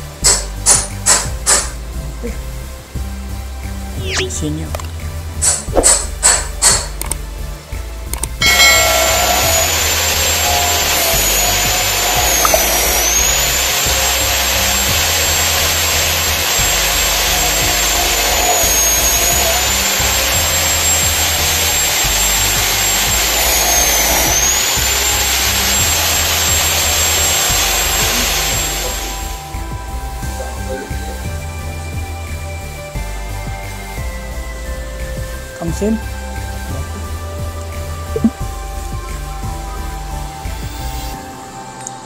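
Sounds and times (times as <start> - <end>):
background music with steady beat: 0.0 - 42.0
abrasive cut-off saw grinding: 8.4 - 30.7.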